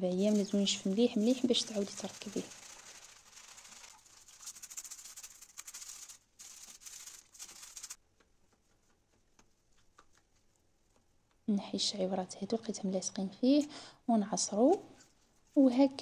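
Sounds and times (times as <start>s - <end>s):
toothbrush scrubbing filter mesh: 0.2s - 8.0s.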